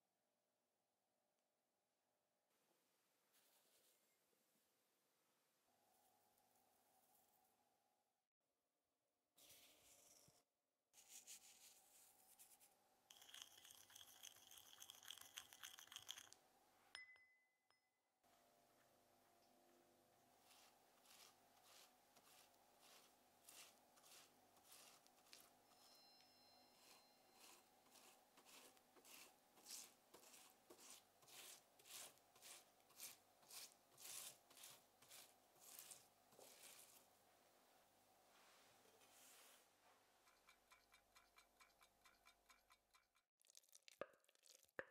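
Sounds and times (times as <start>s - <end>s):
pastry brush strokes: 11.0s - 16.3s, 20.4s - 37.6s, 38.2s - 42.7s
spatula scraping in a bowl: 20.4s - 37.1s, 39.3s - 43.2s.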